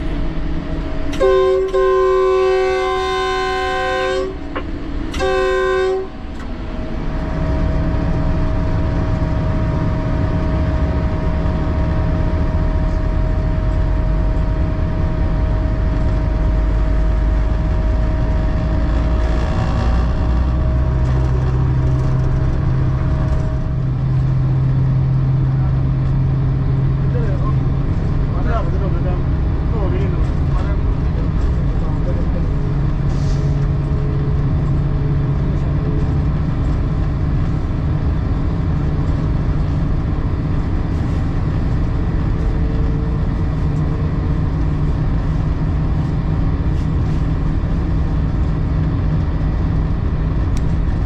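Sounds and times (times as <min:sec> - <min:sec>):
locomotive engine and wheels rumbling: 0:00.0 - 0:51.0
locomotive horn blasts: 0:01.1 - 0:06.3.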